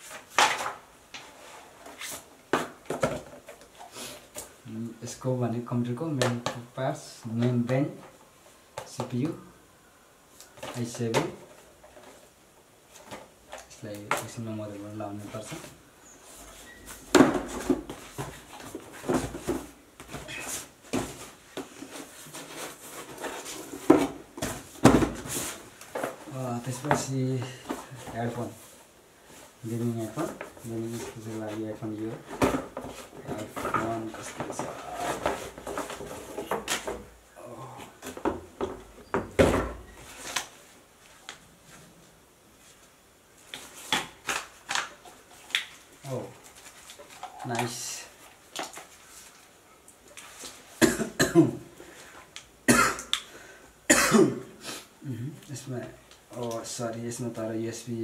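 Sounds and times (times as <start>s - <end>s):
cardboard boxes knocking and scraping: 17.0s - 28.2s, 32.1s - 37.1s.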